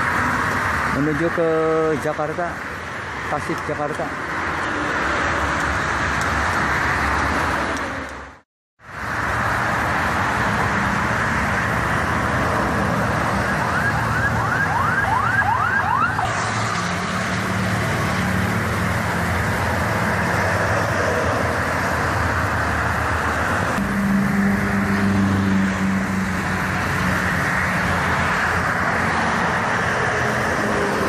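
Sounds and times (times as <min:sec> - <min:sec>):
traffic rushing past: 0:00.0 - 0:31.0
bus engine drone: 0:03.8 - 0:31.0
rising siren-like whoops: 0:13.2 - 0:16.3.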